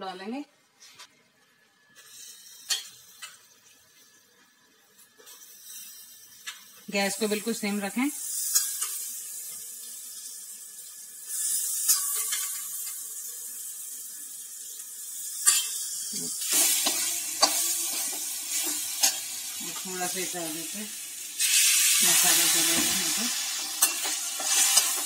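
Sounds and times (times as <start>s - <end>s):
chickpeas sizzling in hot oil: 1.9s - 25.0s
metal ladle clinking on steel pans: 23.6s - 25.0s.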